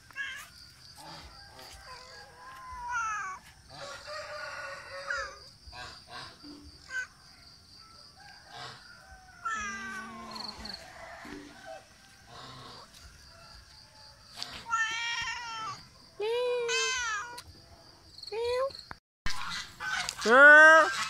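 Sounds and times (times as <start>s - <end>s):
cat meowing: 9.4s - 10.4s, 14.7s - 15.8s.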